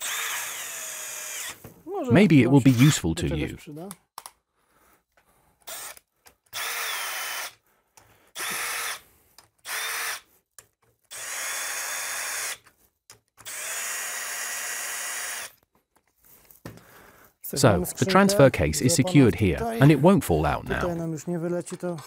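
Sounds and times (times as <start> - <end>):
cordless drill driving bolts: 0.0 - 1.6, 5.7 - 7.6, 8.4 - 9.0, 9.6 - 10.2, 11.1 - 12.6, 13.4 - 15.6.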